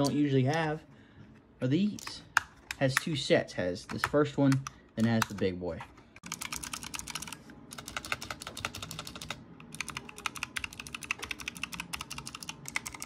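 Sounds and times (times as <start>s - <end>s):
clicky keyboard typing: 6.3s - 13.0s.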